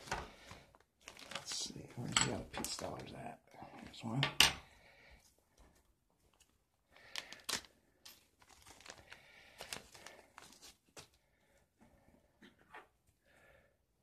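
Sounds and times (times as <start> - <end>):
soft plastic crinkling: 0.0 - 3.1, 5.2 - 11.6.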